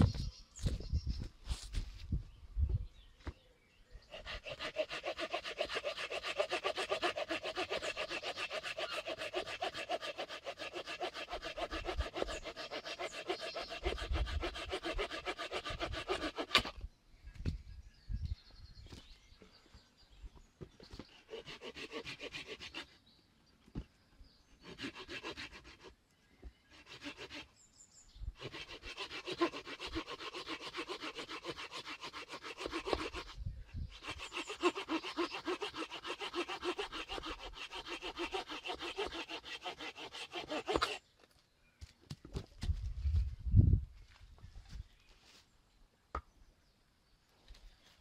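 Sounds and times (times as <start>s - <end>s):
hand saw cutting wood: 4.1s - 16.8s, 21.0s - 23.0s, 24.6s - 25.9s, 26.7s - 27.5s, 28.4s - 41.0s.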